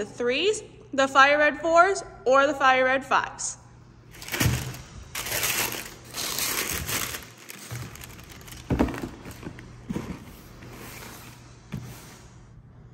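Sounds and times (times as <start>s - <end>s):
tissue paper crinkling: 4.1s - 11.4s.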